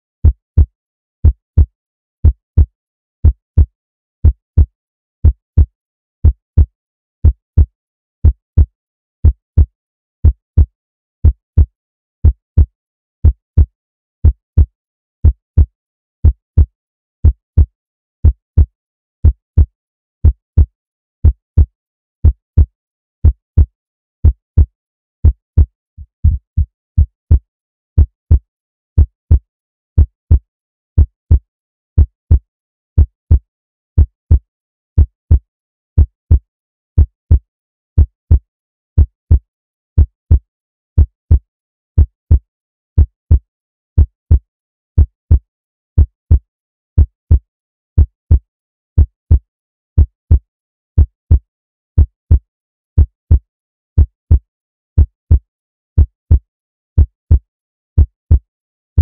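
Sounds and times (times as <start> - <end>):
heartbeat thumps: 25.3 - 27.4.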